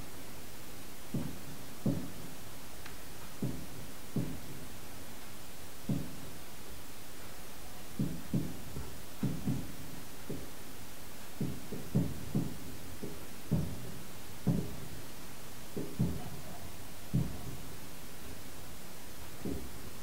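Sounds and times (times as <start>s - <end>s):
steady hiss: 0.0s - 20.0s
muffled firework booms: 17.1s - 17.8s.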